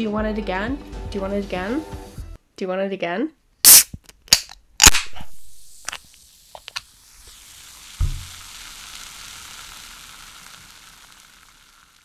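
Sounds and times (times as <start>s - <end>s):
gas hissing from can: 3.7s - 4.0s, 4.9s - 12.0s
can tab snapping: 3.7s - 7.4s, 8.0s - 11.4s
bubbles fizzing: 5.4s - 12.0s
low thump: 8.0s - 8.3s.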